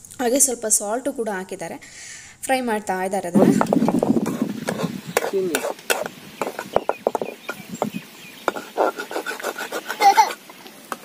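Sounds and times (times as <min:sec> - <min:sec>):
eggs frying in oil: 0:03.5 - 0:11.0
spatula scraping and tapping pan: 0:03.5 - 0:11.0.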